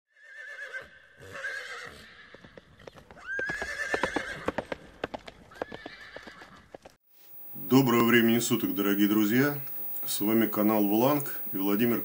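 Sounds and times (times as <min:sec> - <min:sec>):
horse whinnying: 0:00.1 - 0:04.8, 0:05.5 - 0:06.7
galloping hooves: 0:02.3 - 0:07.0.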